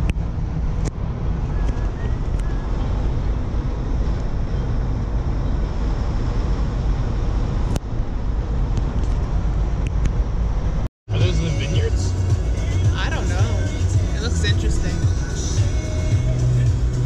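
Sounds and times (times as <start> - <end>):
wind rush: 0.0 - 10.9
tyres and engine rumble: 0.0 - 17.0.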